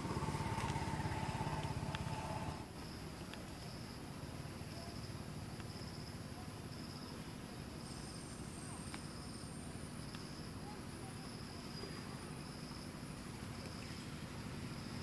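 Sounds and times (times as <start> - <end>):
insects chirring: 0.0 - 15.0
faint clicks: 8.8 - 9.2.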